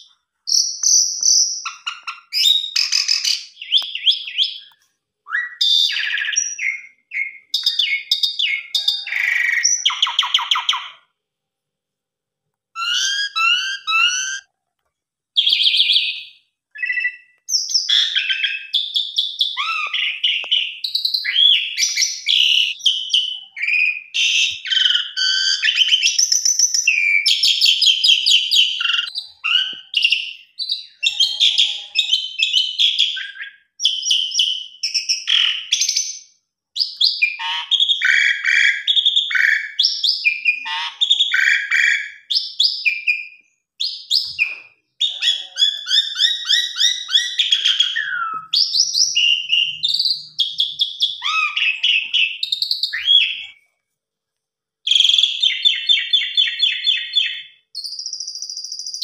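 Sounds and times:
bird singing whistles and chatter: 0.5 - 4.7, 5.3 - 11.0, 12.8 - 14.5, 15.4 - 36.2, 36.8 - 53.6.

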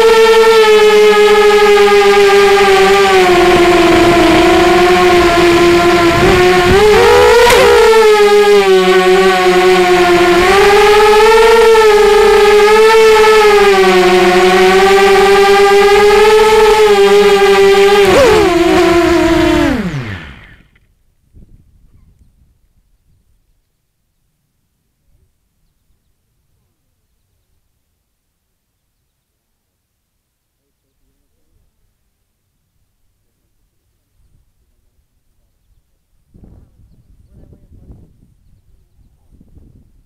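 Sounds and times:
drone motors whining: 0.8 - 20.8.

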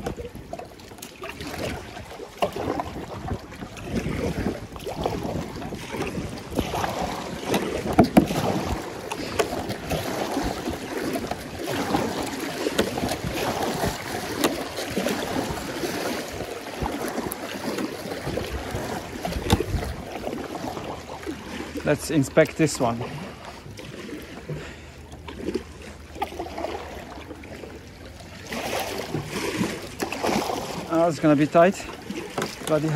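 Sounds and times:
paddle splashes: 0.0 - 32.9
water sloshing against hull: 0.0 - 32.9
wind buffeting microphone: 1.5 - 21.0.

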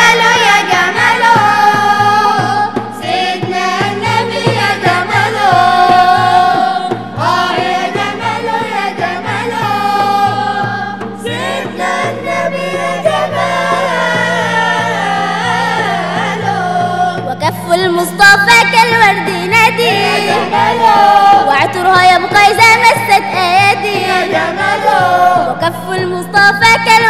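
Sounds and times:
mixed chorus singing: 0.0 - 17.4, 18.8 - 25.8
steady low beat: 0.8 - 18.0.

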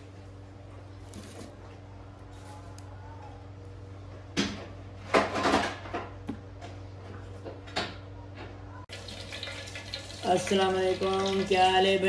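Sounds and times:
steady low hum: 0.0 - 8.9
kitchenware clattering and clinking: 4.4 - 6.2.

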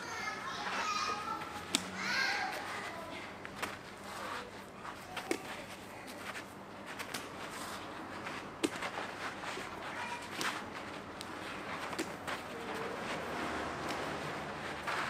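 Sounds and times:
outdoor background noise: 0.0 - 15.0
medicine ball slapping into hands: 1.7 - 2.0.

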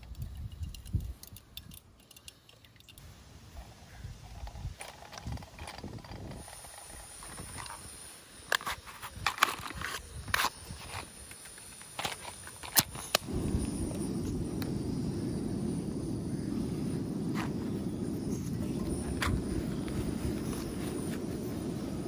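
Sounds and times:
matchbox clicks and scrapes: 8.4 - 13.3.

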